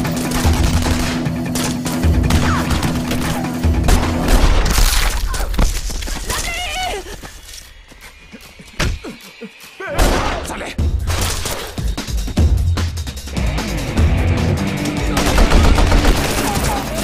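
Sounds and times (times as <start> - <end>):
dramatic music: 0.0 - 17.0
debris shattering and crumbling: 15.2 - 17.0.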